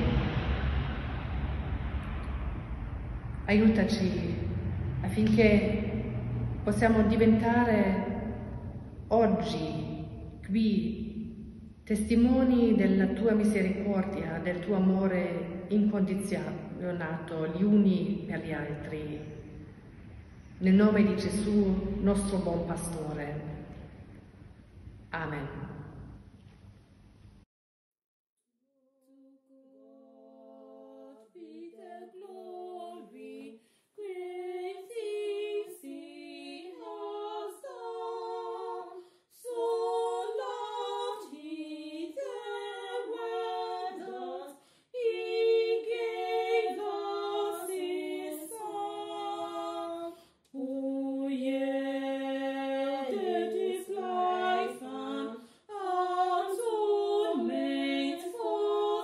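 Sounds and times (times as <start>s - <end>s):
two women singing in harmony: 29.8s - 59.0s.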